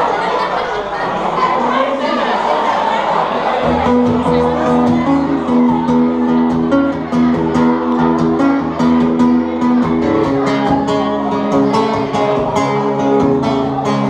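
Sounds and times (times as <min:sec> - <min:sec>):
live band through speakers: 0:03.3 - 0:14.0
guitar strumming: 0:03.6 - 0:14.0.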